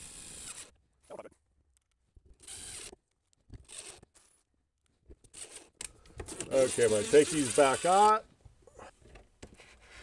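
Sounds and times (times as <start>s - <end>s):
cordless drill driving screws: 0.0s - 0.8s, 2.4s - 3.0s, 3.6s - 4.3s, 5.3s - 8.2s.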